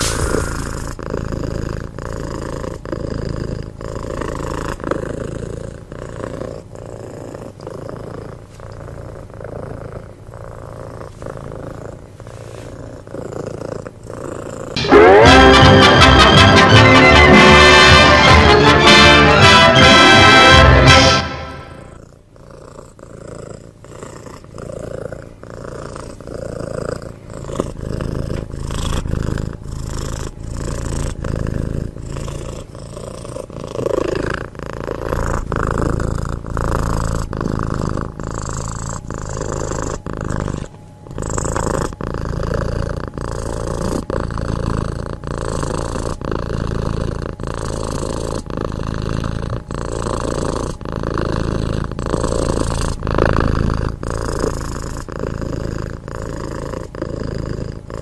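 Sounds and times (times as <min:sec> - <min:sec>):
cat purring: 0:00.0 - 0:15.2, 0:21.8 - 0:58.0.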